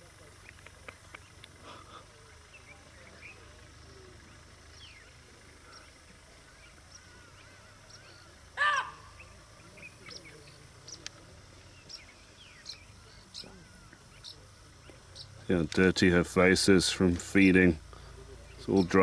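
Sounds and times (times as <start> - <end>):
birds chirping and twittering: 0.0 - 19.0
loud short bird call: 7.0 - 9.3.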